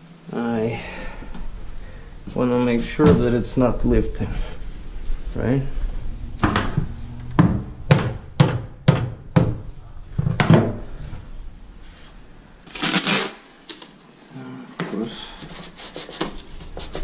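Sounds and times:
rubber mallet knocking: 6.4 - 9.6
masking tape pulled and torn: 12.7 - 14.2.

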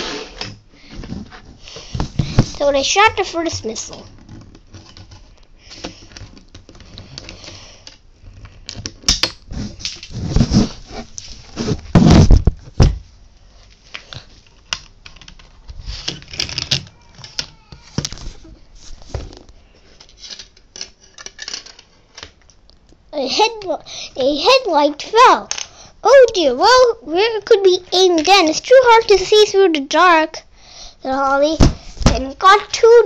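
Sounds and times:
plastic toy pieces clattering on table: 16.1 - 17.6, 20.0 - 22.4.

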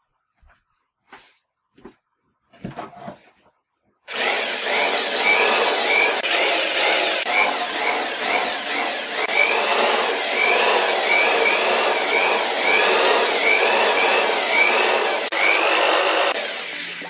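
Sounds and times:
hammer drill motor whining: 4.1 - 17.0.

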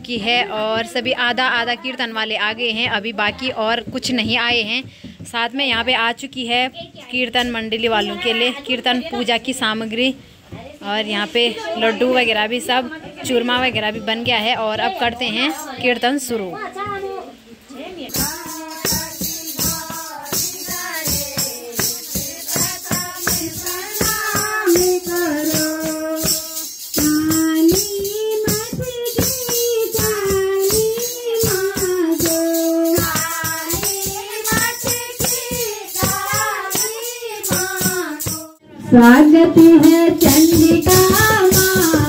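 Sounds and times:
jingling hand percussion: 11.5 - 17.2, 18.0 - 42.0
group devotional singing: 17.8 - 42.0.

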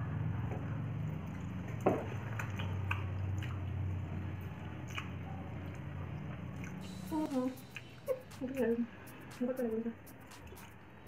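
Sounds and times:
low hum: 2.6 - 11.0.

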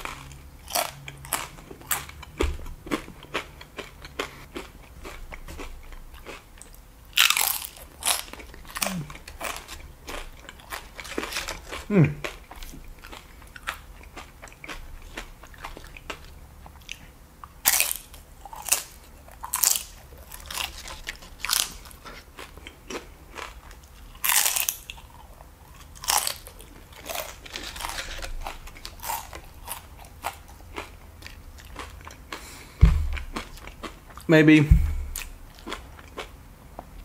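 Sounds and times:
chips crunching: 0.0 - 16.2, 17.7 - 25.2, 25.8 - 34.2
quiet chewing: 18.5 - 34.3.

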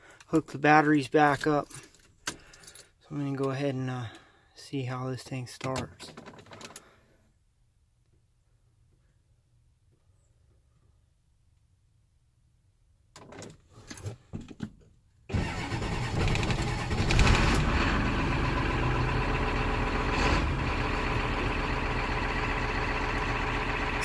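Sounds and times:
diesel engine idling: 15.3 - 24.0
starter motor whine: 15.3 - 24.0.

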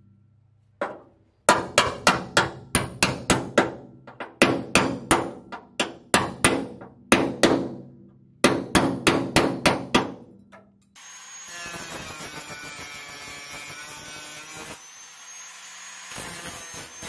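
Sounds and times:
hammer striking chisel on metal: 0.8 - 7.8, 8.4 - 10.8
angle grinder whining: 11.0 - 17.0.

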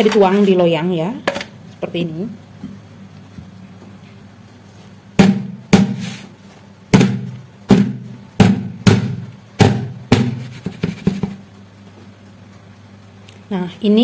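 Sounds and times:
cake pan knocking on metal tray: 5.2 - 6.0, 6.9 - 11.4.

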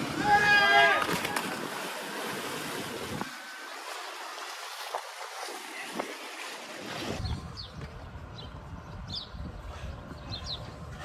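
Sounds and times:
sea surf: 0.0 - 7.3
wind: 0.0 - 11.0
wind rumble on microphone: 6.8 - 11.0.

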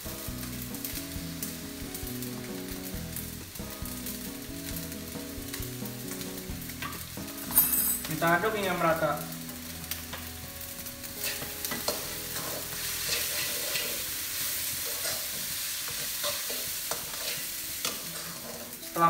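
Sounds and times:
rice sizzling in a wok: 0.0 - 19.0
spatula scraping a wok: 11.1 - 18.8.

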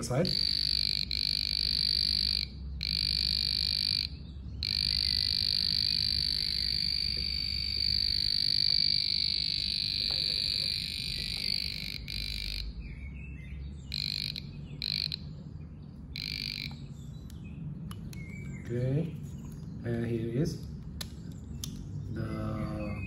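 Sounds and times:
voltage tester buzzer beeping: 0.0 - 12.7, 13.9 - 15.3, 16.2 - 16.8.

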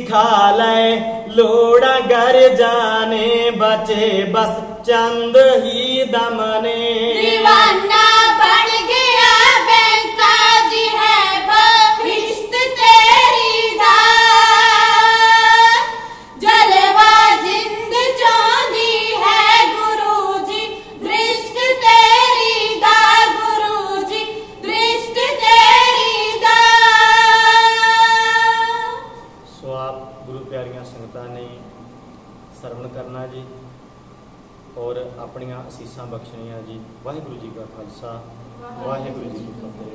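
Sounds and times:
women singing in unison: 7.0 - 29.2.

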